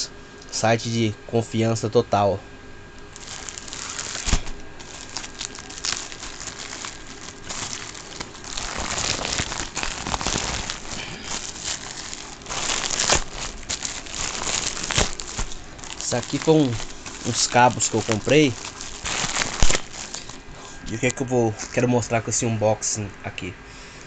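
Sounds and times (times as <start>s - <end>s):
plastic bag crinkling: 3.1s - 22.2s.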